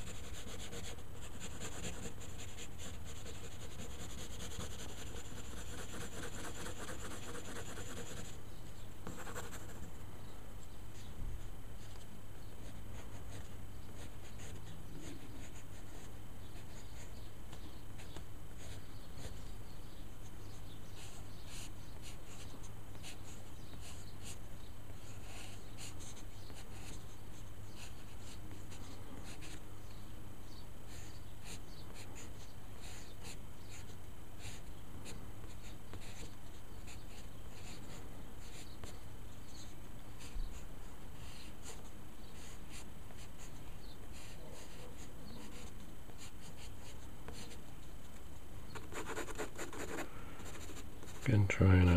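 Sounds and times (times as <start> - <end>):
pencil scratching on paper: 0.0 - 8.3, 9.0 - 9.8, 44.1 - 47.6, 48.8 - 51.2
steady low hum: 0.0 - 51.9.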